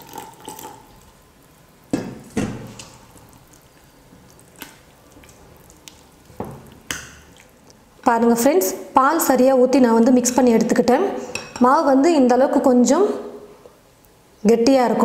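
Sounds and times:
wet batter squishing: 0:01.9 - 0:08.1.

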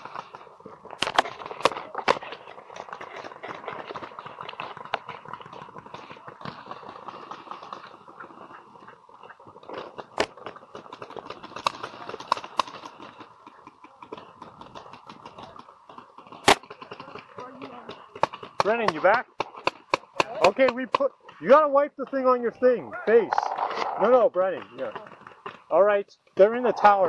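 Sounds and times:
paintball markers firing: 0:09.7 - 0:21.5.

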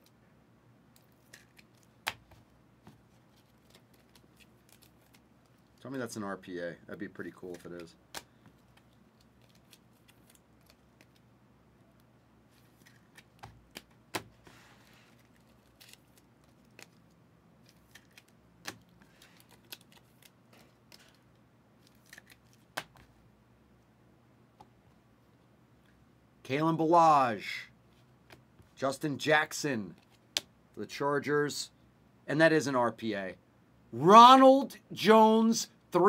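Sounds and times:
trading cards rustling: 0:01.0 - 0:06.1, 0:07.2 - 0:11.3, 0:12.5 - 0:23.1.

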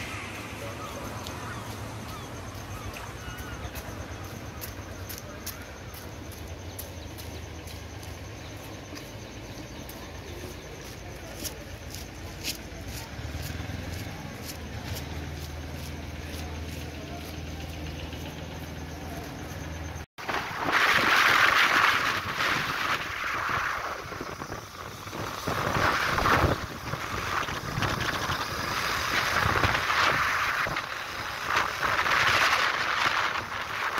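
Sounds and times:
low engine hum: 0:00.0 - 0:20.5
motorcycle riding: 0:07.3 - 0:33.9
wind buffeting microphone: 0:20.2 - 0:33.9.

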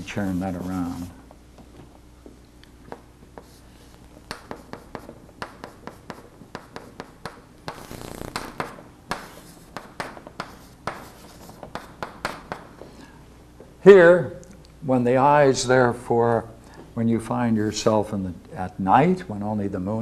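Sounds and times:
chalk scratching on chalkboard: 0:00.0 - 0:01.2, 0:03.4 - 0:12.6.

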